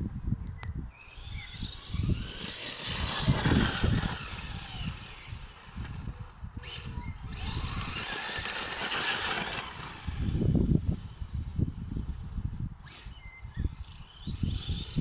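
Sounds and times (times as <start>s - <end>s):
wind buffeting microphone: 0.0s - 15.0s
electric motor whine: 1.0s - 15.0s.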